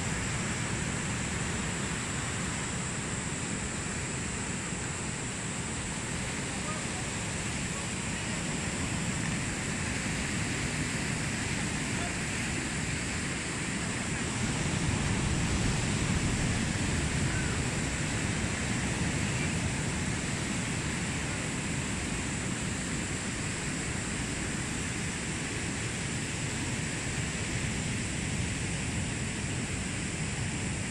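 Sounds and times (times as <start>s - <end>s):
ocean surf on a beach: 0.0s - 30.9s
wind: 0.0s - 30.9s.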